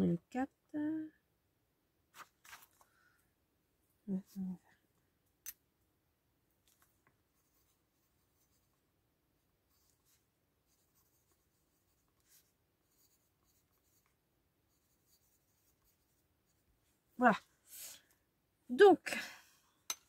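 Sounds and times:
faint pen scratching on paper: 7.3s - 8.8s, 9.6s - 16.8s.

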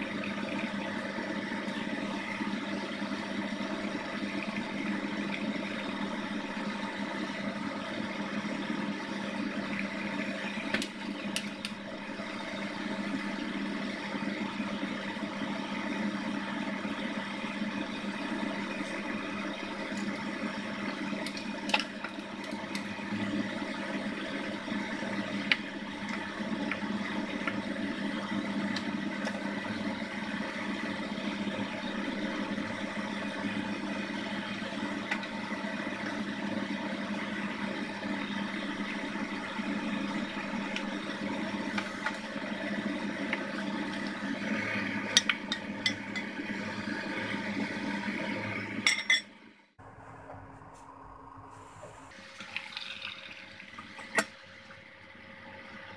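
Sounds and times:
broth simmering in pot: 0.0s - 48.9s.

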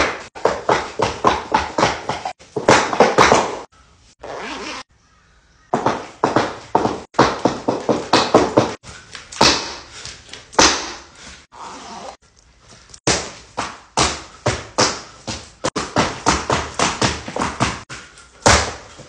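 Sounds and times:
stiletto boots knocking on floor: 0.4s - 3.6s, 5.8s - 8.8s.

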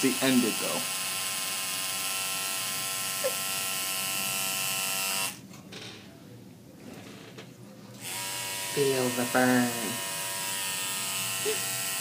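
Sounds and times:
tattoo machine buzzing: 0.0s - 5.4s, 8.0s - 12.0s.

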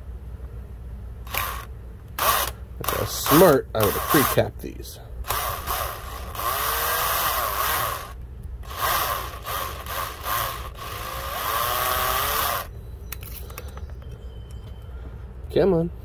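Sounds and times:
cordless drill driving a screw: 1.3s - 4.4s, 5.3s - 12.7s.

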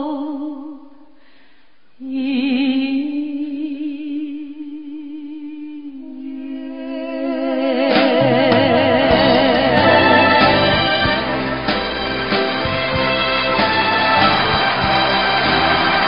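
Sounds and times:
man and woman singing duet: 6.1s - 11.2s.

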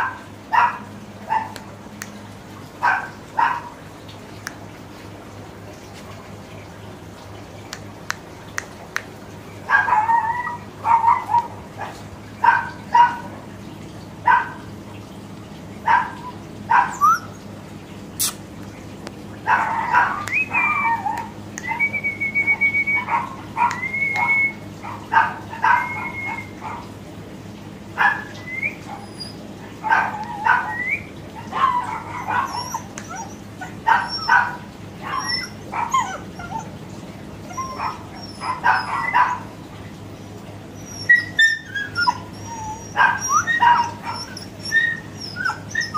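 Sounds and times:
puppy whining: 9.7s - 13.2s, 15.9s - 17.4s, 19.5s - 26.9s, 28.0s - 36.8s, 37.4s - 39.5s, 40.8s - 45.9s
puppy yapping: 9.7s - 13.3s, 15.9s - 17.4s, 19.5s - 26.9s, 28.0s - 36.8s, 37.4s - 39.6s, 40.8s - 45.9s.

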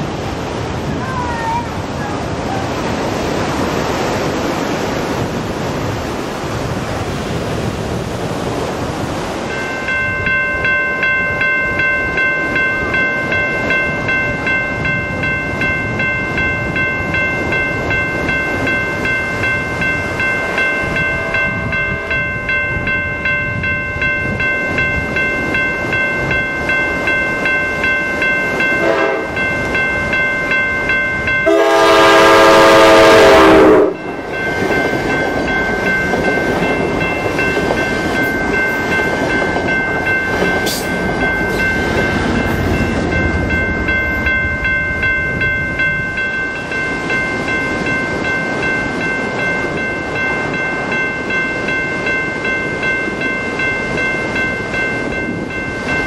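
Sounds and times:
railroad crossing bell ringing: 0.0s - 56.0s
train horn: 28.8s - 29.4s, 31.4s - 34.0s.

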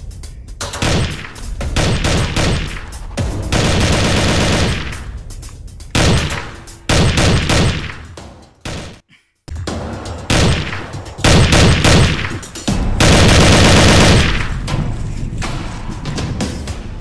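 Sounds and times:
automatic rifle fire: 0.8s - 2.8s, 3.5s - 5.1s, 6.0s - 8.0s, 10.3s - 12.4s, 13.0s - 14.6s.

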